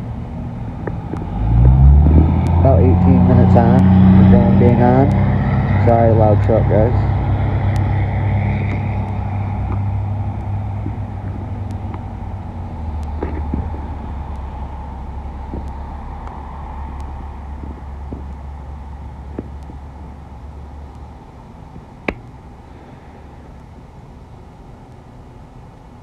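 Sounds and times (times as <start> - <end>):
truck engine passing by: 0.0 - 19.9.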